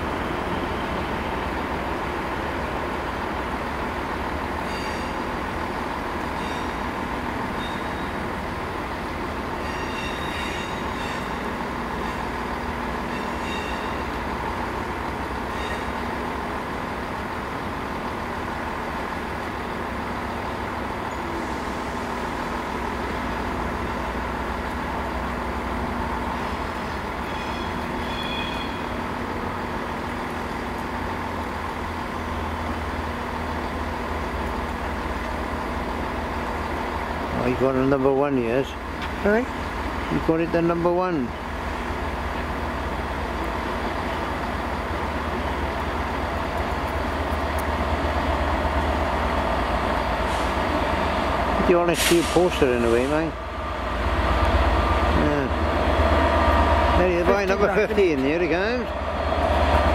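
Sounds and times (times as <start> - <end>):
locomotive engine humming: 0.0 - 59.9
train wheels squealing: 4.6 - 5.3, 6.3 - 6.9, 7.5 - 8.2, 9.6 - 12.4, 13.0 - 14.2, 15.5 - 16.0, 26.4 - 29.0.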